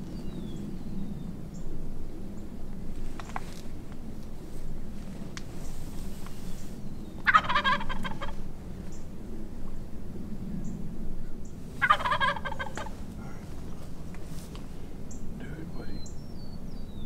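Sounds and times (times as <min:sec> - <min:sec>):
turkey gobbling: 0:07.2 - 0:08.4, 0:11.8 - 0:13.0.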